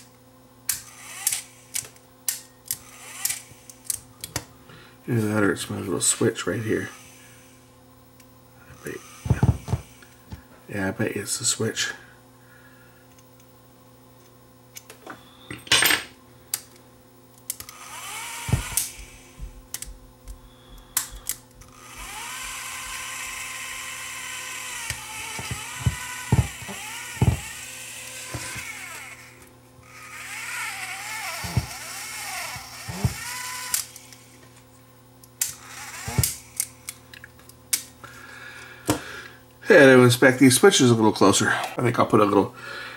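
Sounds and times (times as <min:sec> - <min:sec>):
tape motor whirring: 0:00.7 - 0:04.0, 0:06.7 - 0:07.7, 0:08.7 - 0:10.2, 0:17.5 - 0:34.6, 0:35.3 - 0:37.0.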